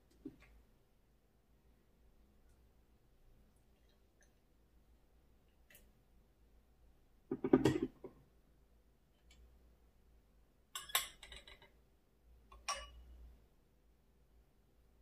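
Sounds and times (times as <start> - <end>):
glass lid and bowl clinking: 12.6 - 13.0.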